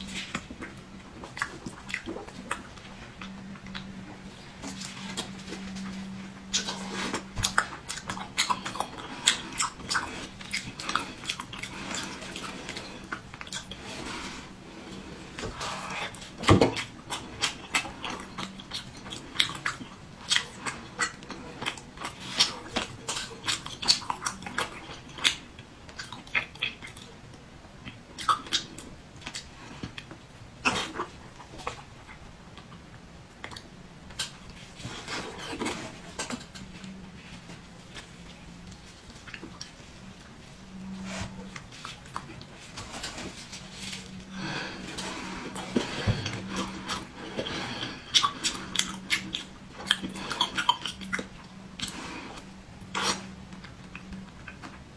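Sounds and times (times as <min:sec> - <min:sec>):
wet chewing: 0:00.0 - 0:54.8
lip smacks and mouth clicks: 0:27.8 - 0:34.6, 0:48.1 - 0:52.0.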